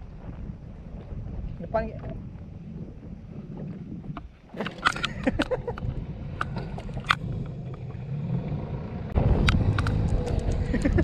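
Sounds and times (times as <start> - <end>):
steady low rumble: 0.0 - 11.0
small sharp clicks and knocks: 9.4 - 11.0.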